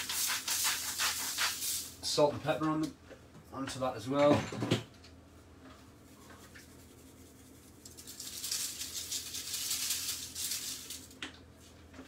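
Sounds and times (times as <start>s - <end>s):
pepper grinder grinding: 7.8s - 11.1s.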